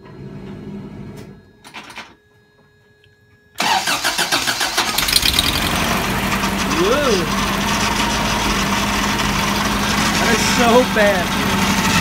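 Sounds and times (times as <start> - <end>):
car engine cranking: 3.6 - 12.0
engine running loud and uneven: 4.9 - 12.0.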